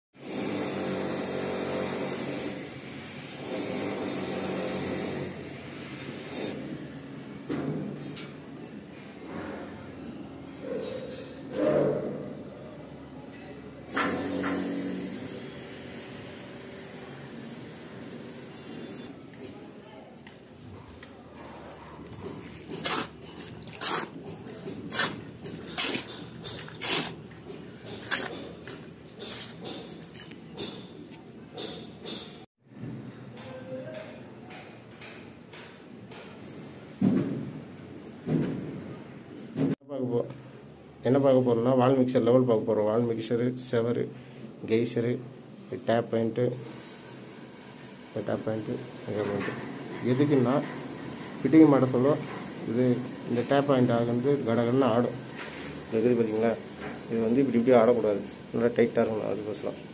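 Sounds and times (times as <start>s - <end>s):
wet mortar mixing scrapes: 21.4s - 30.2s.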